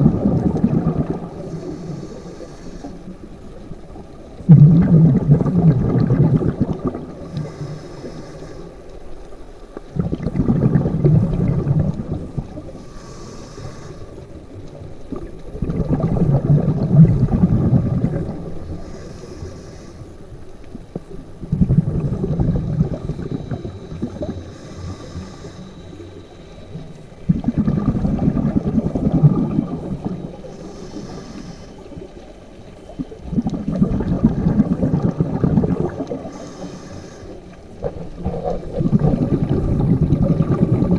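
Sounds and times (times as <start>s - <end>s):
gurgling exhaled bubbles: 0.0s - 8.3s, 9.8s - 19.8s, 20.6s - 40.9s
regulator inhale hiss: 1.2s - 3.7s, 7.1s - 9.4s, 12.5s - 14.7s, 18.5s - 20.6s, 22.6s - 27.3s, 29.8s - 32.8s, 35.8s - 37.9s.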